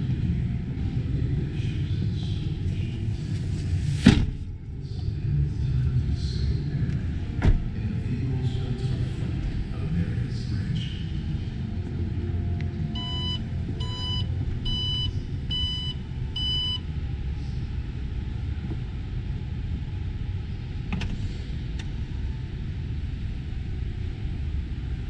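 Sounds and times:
steady low rumble: 0.0s - 25.0s
short warning beeps: 13.0s - 16.8s.

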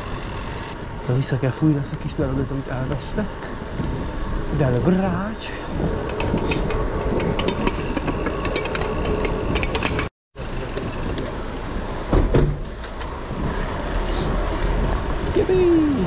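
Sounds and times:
vehicles running and idling: 0.0s - 16.0s
clicks and rattles: 6.0s - 10.1s.

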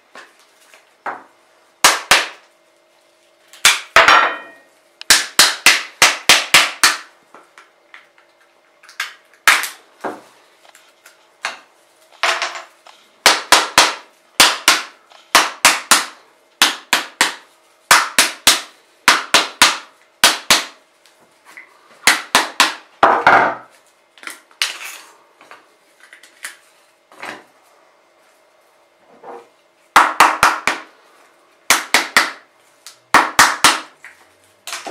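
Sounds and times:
hammer knocking on coconut shell: 30.0s - 30.9s.

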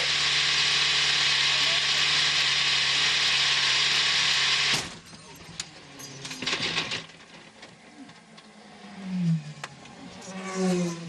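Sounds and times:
race car engine running: 0.0s - 5.0s.

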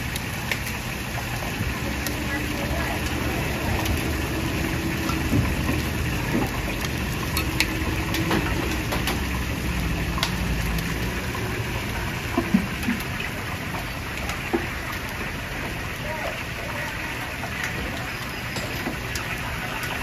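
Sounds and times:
low mechanical hum: 0.0s - 15.2s.

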